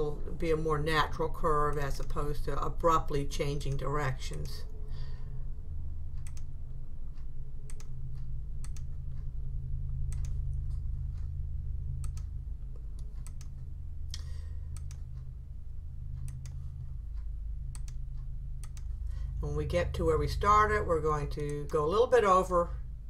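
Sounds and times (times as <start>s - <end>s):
steady low hum: 0.0s - 23.0s
computer mouse clicking: 6.2s - 6.5s, 7.2s - 9.3s, 9.9s - 11.3s, 12.0s - 15.3s, 16.2s - 19.0s.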